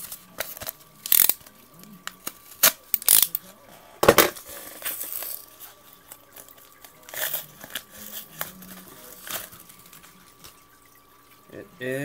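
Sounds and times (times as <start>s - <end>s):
packaging crinkling and tearing: 4.6s - 10.6s.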